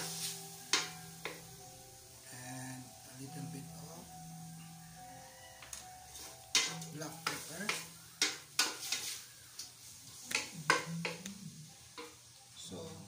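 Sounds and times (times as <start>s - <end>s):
meat sizzling in oil: 0.0s - 5.0s, 5.8s - 10.9s.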